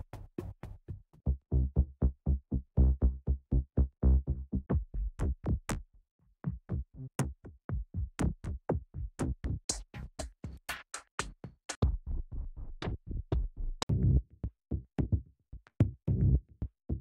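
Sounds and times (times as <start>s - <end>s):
deep booming percussion loop: 4.6s - 5.8s, 6.5s - 10.6s, 11.7s - 14.2s.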